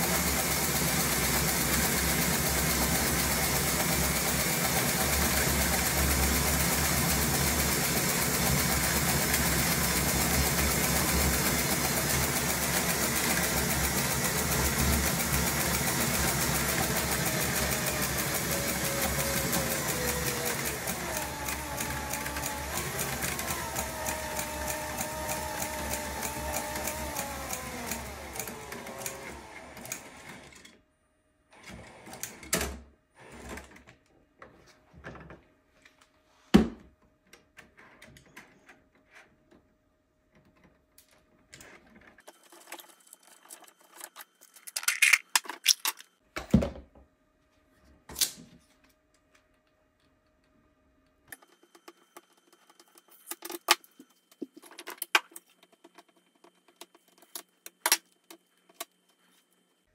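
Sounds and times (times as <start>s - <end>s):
drill motor and gears whirring: 15.4s - 30.4s
knocks and clatter on a desk: 46.4s - 47.1s.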